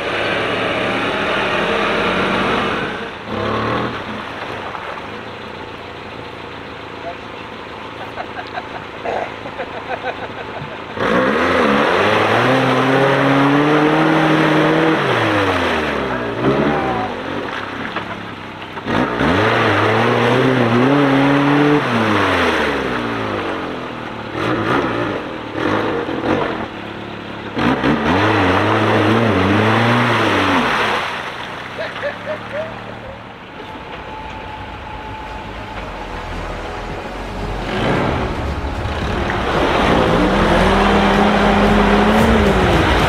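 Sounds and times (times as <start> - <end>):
engine revving hard: 0.0 - 4.2, 10.9 - 17.3, 18.8 - 26.7, 27.5 - 31.2, 36.0 - 43.0
wheels splashing through mud: 0.0 - 43.0.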